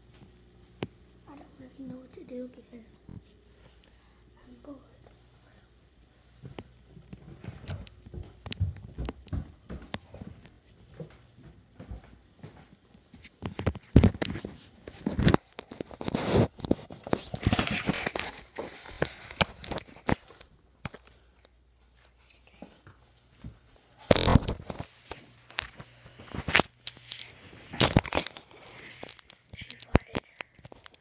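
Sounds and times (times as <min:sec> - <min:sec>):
phone rustling against clothing: 0:13.2 - 0:21.2.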